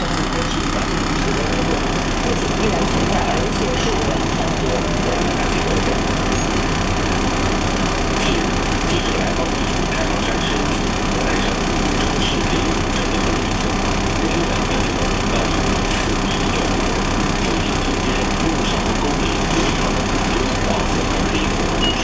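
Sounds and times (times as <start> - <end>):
bus cabin noise: 0.0 - 22.0
bus engine running: 0.0 - 22.0.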